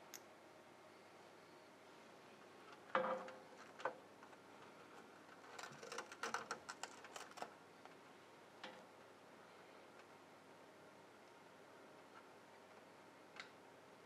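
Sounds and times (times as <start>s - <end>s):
small clicks and rustles: 2.4s - 9.1s.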